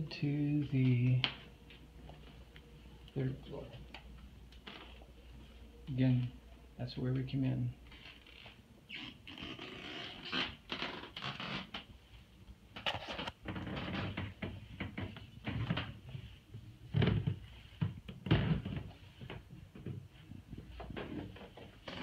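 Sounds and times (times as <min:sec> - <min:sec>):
footsteps on carpeted stairs: 0:00.0 - 0:06.4, 0:13.4 - 0:22.0.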